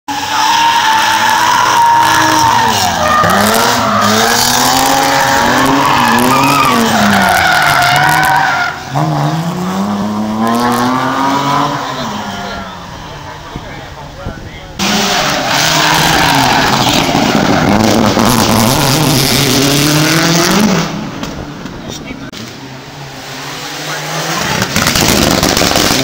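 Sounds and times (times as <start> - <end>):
tyres squealing: 0.1 - 9.0
rally car engine revving: 0.1 - 26.0.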